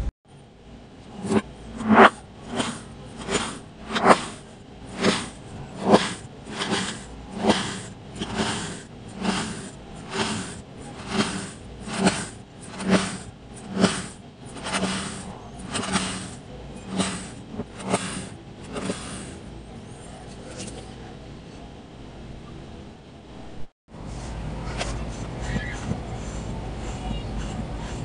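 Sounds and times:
knife cutting through sand: 1.1s - 19.5s.

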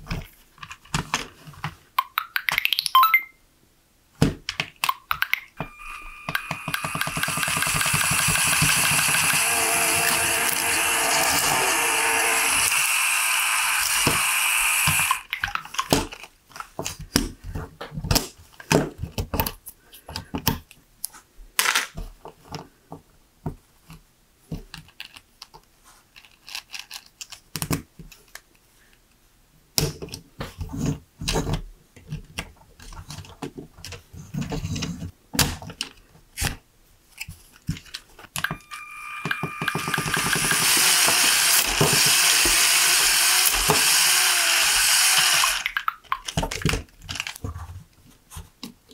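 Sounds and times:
toy motor whirring: 5.6s - 15.3s, 38.4s - 45.9s
plastic pieces clicking together: 26.2s - 28.4s, 44.6s - 47.4s.

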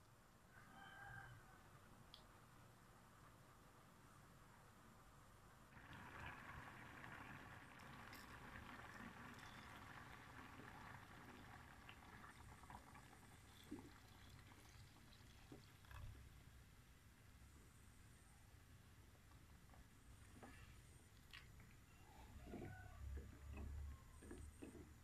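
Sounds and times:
coconut milk pouring into pot: 5.7s - 16.5s
porridge bubbling: 5.7s - 17.8s, 19.2s - 25.0s.

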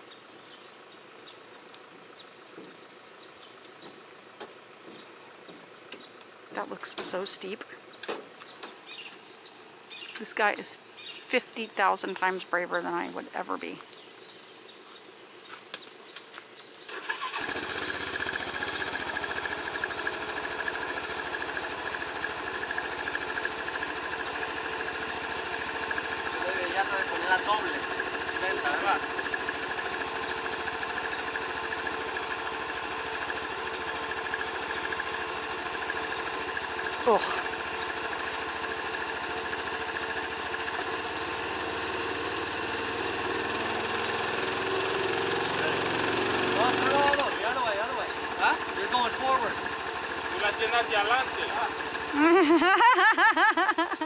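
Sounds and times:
engine starting and idling: 16.8s - 53.9s.

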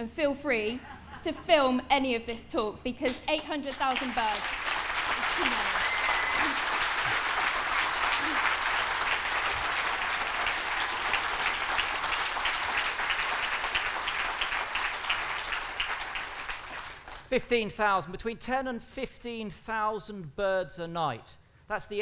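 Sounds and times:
audience applauding: 3.7s - 17.3s.

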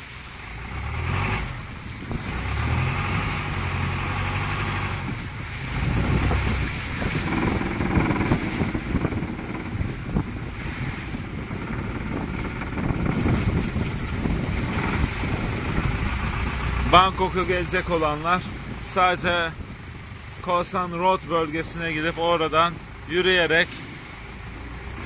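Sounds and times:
boat engine humming: 0.0s - 25.0s
water rushing along hull: 0.0s - 25.0s
wind on microphone: 1.3s - 17.8s.

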